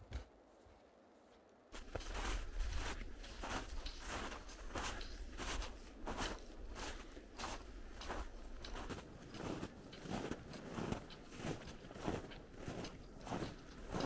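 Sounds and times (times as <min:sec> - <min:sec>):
footsteps crunching through snow: 0:01.7 - 0:14.0.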